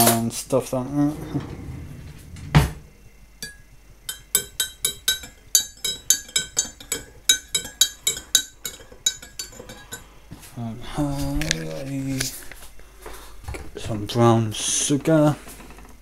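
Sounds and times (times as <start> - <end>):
teaspoon clinking in a ceramic mug: 3.4 - 10.0.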